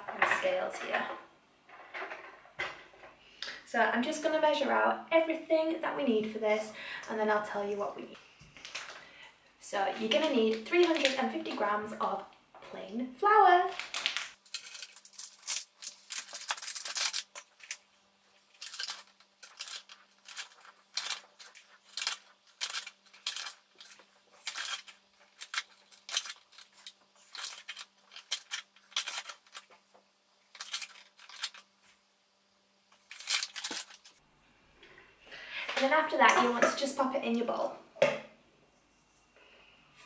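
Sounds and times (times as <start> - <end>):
paper bag crinkling: 13.7 - 31.7, 33.0 - 34.2.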